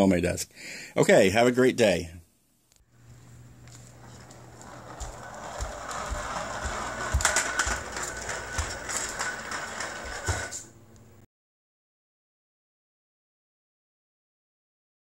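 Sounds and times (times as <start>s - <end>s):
toy car rattling across floor: 3.7s - 10.7s.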